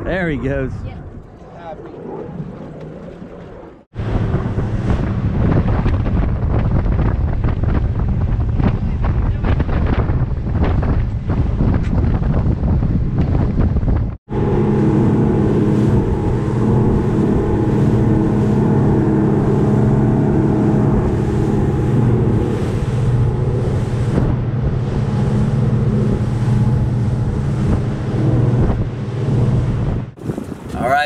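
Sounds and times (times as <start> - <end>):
boat engine drone: 0.0 - 11.7, 14.3 - 30.2
rush of boat wake: 0.0 - 31.0
wind buffeting microphone: 0.0 - 31.0.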